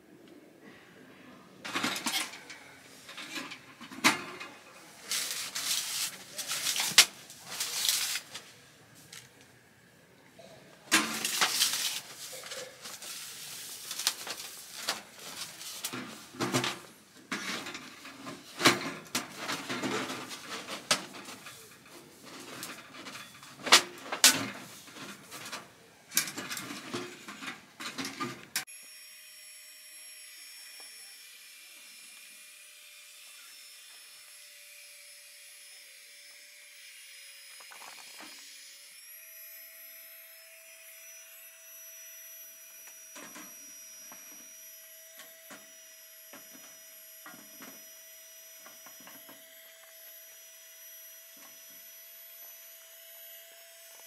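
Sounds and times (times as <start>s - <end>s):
objects clattering: 1.7s - 8.4s, 10.9s - 28.6s, 37.6s - 38.4s.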